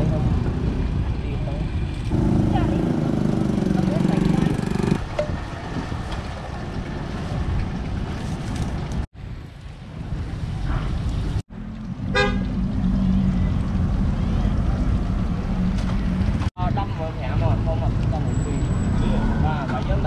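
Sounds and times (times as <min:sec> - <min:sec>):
passing cars and motorbikes: 0:00.0 - 0:20.0
horn toot: 0:12.1 - 0:12.5.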